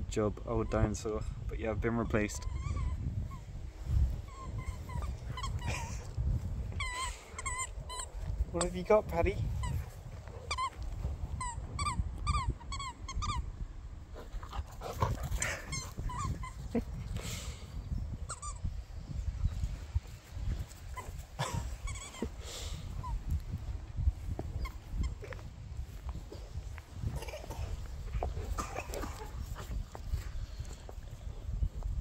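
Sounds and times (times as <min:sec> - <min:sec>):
squeaky dog toy squeaking: 0:02.4 - 0:03.0, 0:06.8 - 0:08.1, 0:11.4 - 0:13.4, 0:18.3 - 0:18.6, 0:21.8 - 0:22.3.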